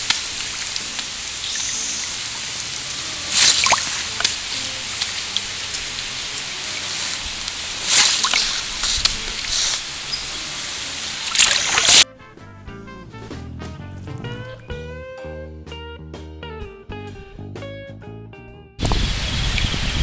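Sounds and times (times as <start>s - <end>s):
hiss of moving water: 0.0s - 12.0s, 18.8s - 20.0s
paddle blades splashing: 0.0s - 12.0s
water dripping off paddles: 0.0s - 12.0s.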